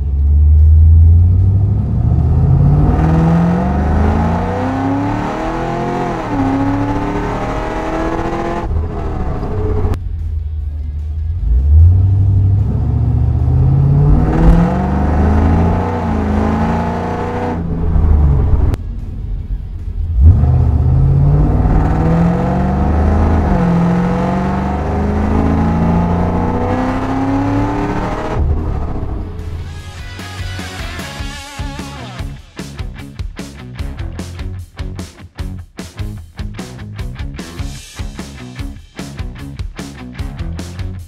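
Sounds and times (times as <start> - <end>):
car engine accelerating hard: 0.0 - 10.0, 11.3 - 19.3, 20.0 - 29.7.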